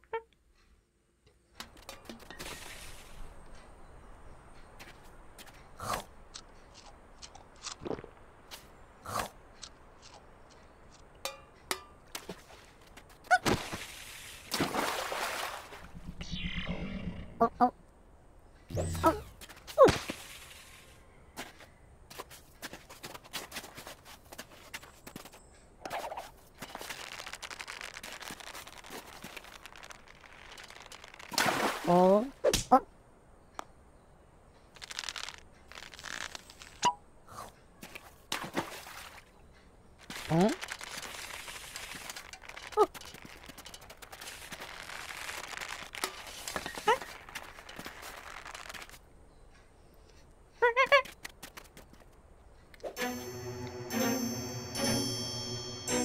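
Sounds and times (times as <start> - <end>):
cartoon impact with squeak: 18.7 - 19.4.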